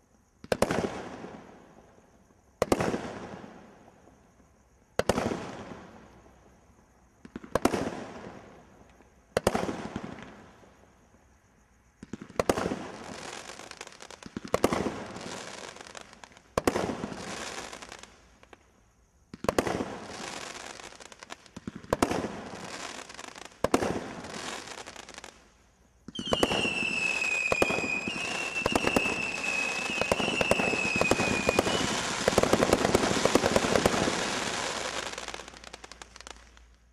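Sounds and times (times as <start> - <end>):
firework whistle: 26.1 - 36.4
roman candle shots: 26.1 - 36.6
firework crackling: 26.1 - 36.8.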